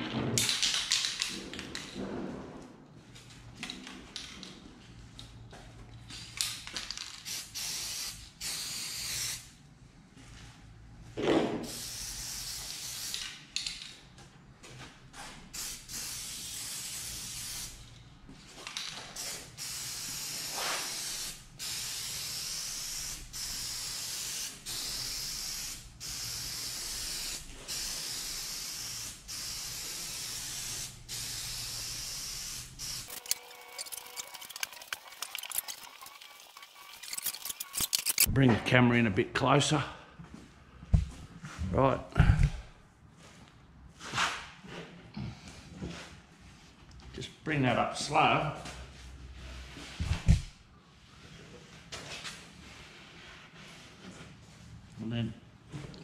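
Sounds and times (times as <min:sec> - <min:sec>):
aerosol spray can hissing: 0:07.3 - 0:09.4, 0:11.7 - 0:13.2, 0:15.6 - 0:17.8, 0:19.2 - 0:37.7.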